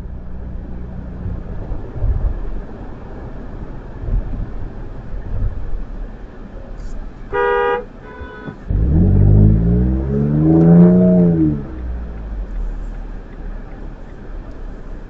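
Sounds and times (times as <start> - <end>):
car driving rumble: 0.0 - 15.0
car engine revving: 6.8 - 15.0.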